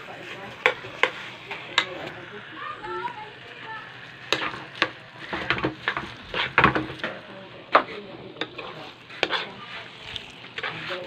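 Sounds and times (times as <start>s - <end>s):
metal spoon scraping metal pan: 4.2s - 7.1s, 7.8s - 11.0s.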